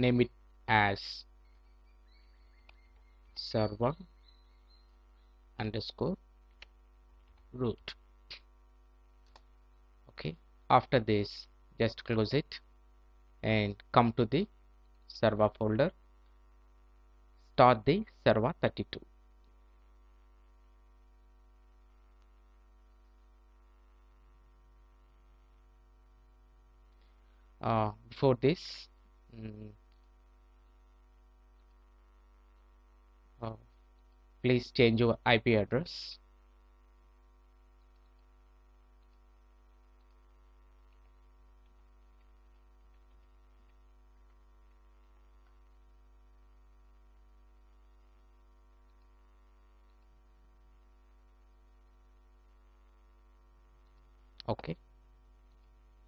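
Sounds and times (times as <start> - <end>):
faint electrical hum: 0.0 - 56.0
faint ticks: 39.0 - 46.0, 46.9 - 53.0.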